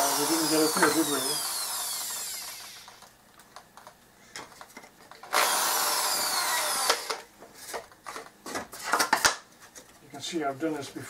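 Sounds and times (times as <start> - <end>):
cordless drill whining: 0.0 - 3.1, 5.3 - 7.2.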